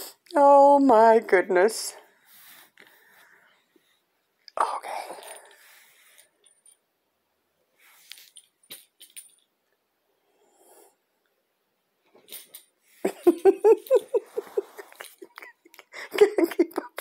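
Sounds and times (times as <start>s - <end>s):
faint rustling and small clicks: 7.8s - 9.8s, 12.0s - 17.0s
person laughing in short bursts: 13.1s - 15.6s.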